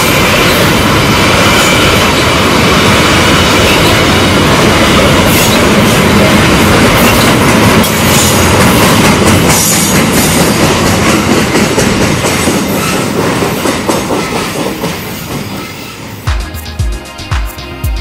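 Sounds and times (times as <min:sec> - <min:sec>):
train wheels clacking over rails: 0:00.0 - 0:16.4.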